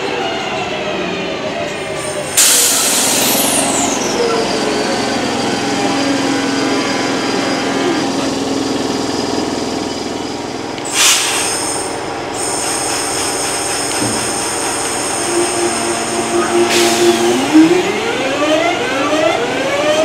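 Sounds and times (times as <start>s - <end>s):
electric train traction whine: 0.4s - 20.0s
loud hiss-like burst: 10.9s - 17.2s.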